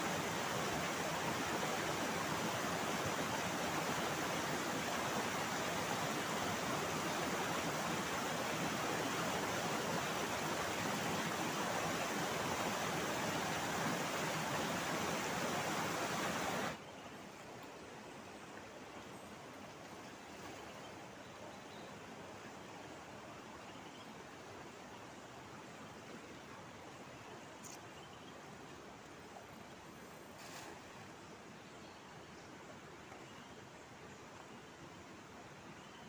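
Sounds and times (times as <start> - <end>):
river rushing over rocks: 0.0 - 16.8.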